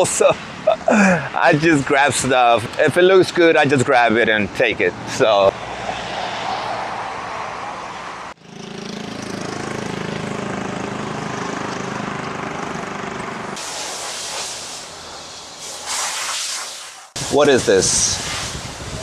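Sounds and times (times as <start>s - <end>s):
street traffic hiss: 0.0s - 8.4s, 9.4s - 19.0s
vehicle engine running close by: 8.4s - 13.6s.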